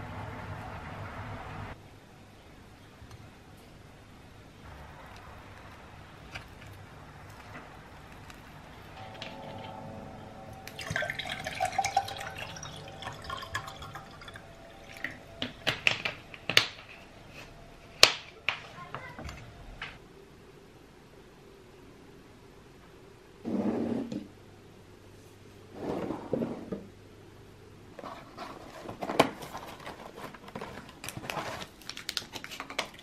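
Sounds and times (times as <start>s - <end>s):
water pouring into a glass: 10.6s - 15.6s.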